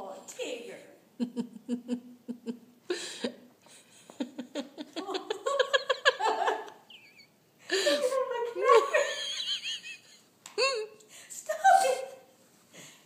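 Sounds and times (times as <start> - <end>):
person giggling: 1.2 - 11.0.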